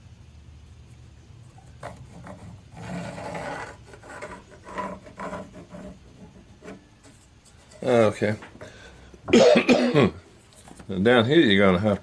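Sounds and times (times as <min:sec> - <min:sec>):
pencil scraping on wood: 0:01.8 - 0:07.9
steel rule sliding on wood: 0:01.8 - 0:08.0.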